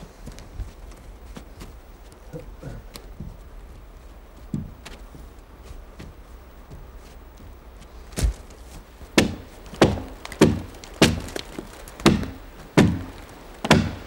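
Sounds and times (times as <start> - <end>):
axe chopping tree trunk: 9.2 - 14.0.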